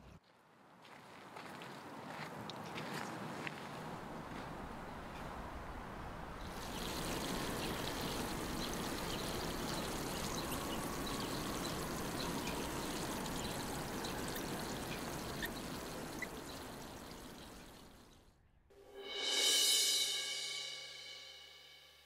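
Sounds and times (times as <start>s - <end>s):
hose water pouring on soil: 6.4s - 18.1s.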